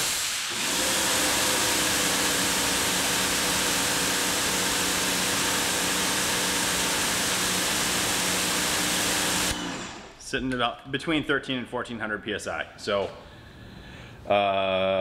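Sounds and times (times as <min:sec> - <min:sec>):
water spray hissing: 0:00.0 - 0:00.5
electric motor and pump humming: 0:00.0 - 0:10.2.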